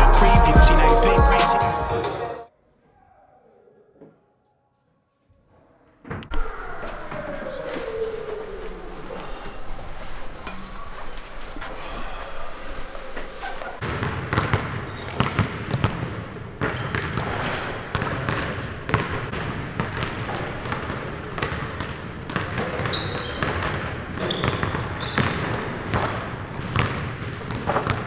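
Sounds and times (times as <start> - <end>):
basketballs bouncing on wooden floor: 13.8 - 28.0.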